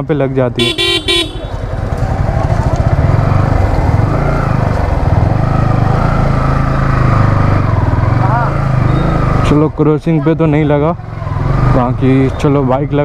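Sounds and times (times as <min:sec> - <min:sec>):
motorcycle engine running: 0:00.6 - 0:09.6.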